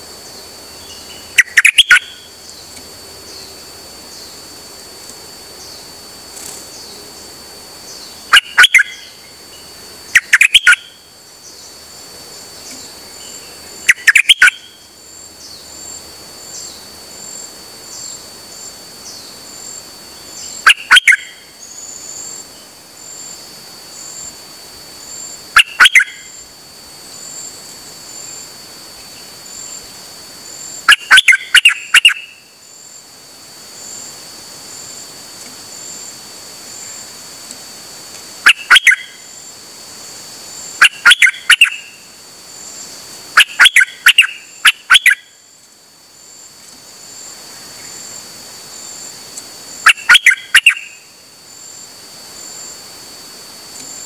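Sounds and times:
insect trill: 0.0s - 54.0s
songbird singing bright notes: 0.8s - 4.4s, 7.8s - 11.8s.

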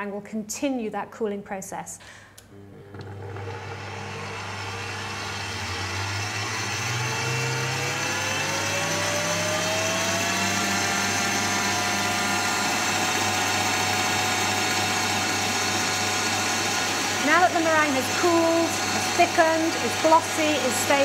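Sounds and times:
stand mixer motor whining: 2.4s - 21.0s.

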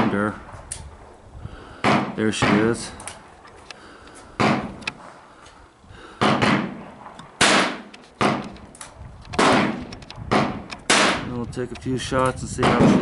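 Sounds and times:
gunshots with echo: 1.8s - 2.9s, 4.4s - 4.8s, 6.2s - 8.6s, 9.4s - 11.3s, 12.6s - 13.0s.

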